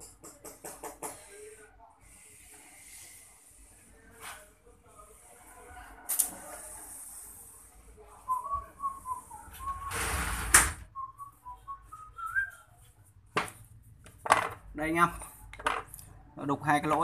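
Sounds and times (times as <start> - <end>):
person whistling: 11.0 - 12.6.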